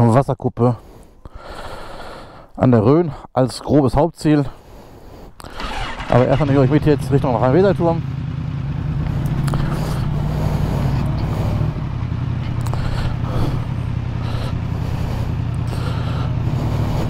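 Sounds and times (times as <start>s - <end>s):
motorcycle engine running: 5.4s - 17.0s.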